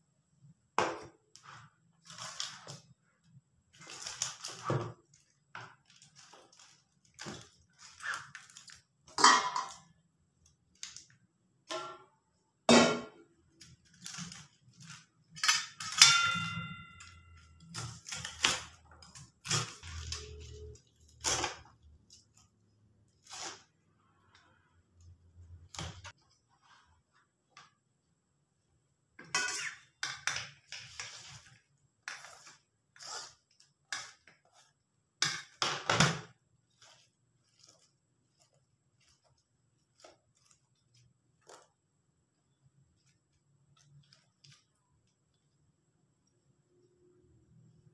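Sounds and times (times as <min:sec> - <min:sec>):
metal bowls and plates clinking: 0:09.1 - 0:09.8, 0:15.4 - 0:17.5
metal dish ringing ding: 0:16.0 - 0:17.2.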